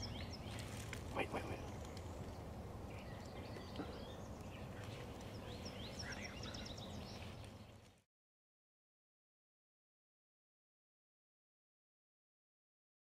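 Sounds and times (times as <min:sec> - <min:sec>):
small birds chirping: 0:00.0 - 0:08.0
steady low hiss: 0:00.0 - 0:08.0.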